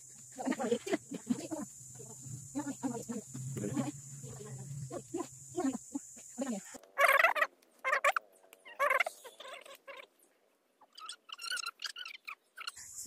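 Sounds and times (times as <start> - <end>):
poultry calling: 1.2 - 10.1.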